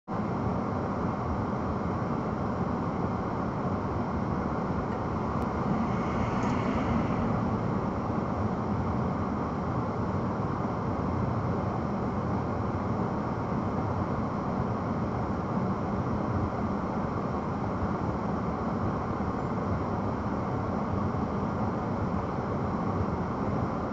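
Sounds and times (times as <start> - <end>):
car engine idling rumble: 2.7 - 10.8.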